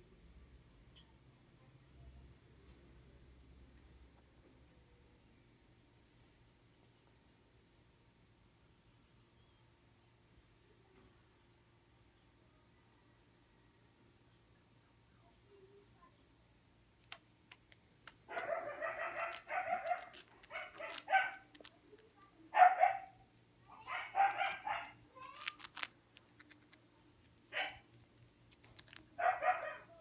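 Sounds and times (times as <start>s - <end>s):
hamster gnawing crunchy chip: 17.1s - 22.3s, 23.8s - 29.9s
animal pitched calls: 23.7s - 25.8s.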